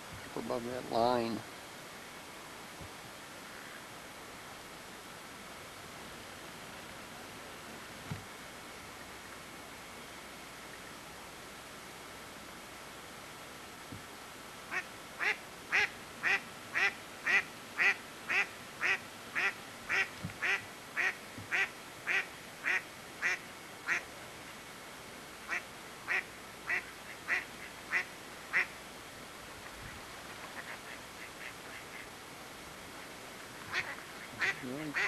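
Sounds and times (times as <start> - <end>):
duck quacking: 33.7 - 35.0.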